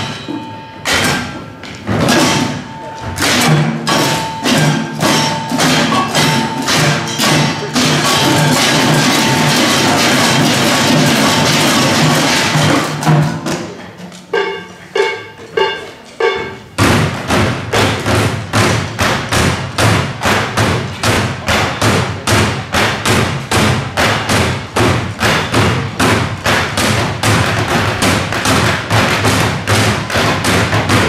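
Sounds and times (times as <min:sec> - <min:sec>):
plastic bins drummed: 0:00.0 - 0:31.0
ringing pitched strokes: 0:02.2 - 0:12.8, 0:14.3 - 0:16.8.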